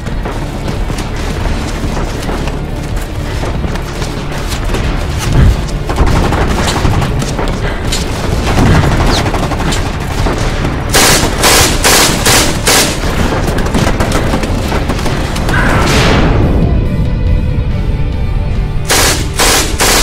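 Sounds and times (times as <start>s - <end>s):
rapid rifle and machine-gun shots: 0.0s - 16.1s, 18.9s - 20.0s
heavy low boom: 15.5s - 17.8s.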